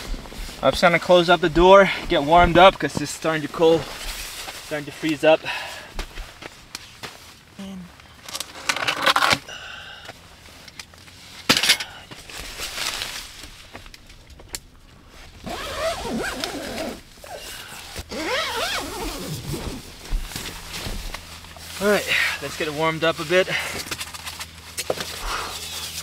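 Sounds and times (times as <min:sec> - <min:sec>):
heavy fabric rustling: 0:15.0 - 0:22.6
zipper buzzing: 0:15.4 - 0:17.4, 0:18.1 - 0:20.0.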